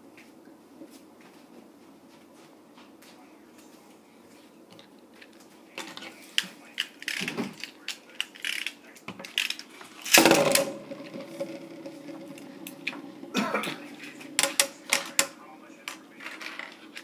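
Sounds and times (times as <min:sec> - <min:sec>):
spinning tops clicking and knocking: 0:08.2 - 0:16.8
steady hum of spinning tops: 0:09.4 - 0:17.0.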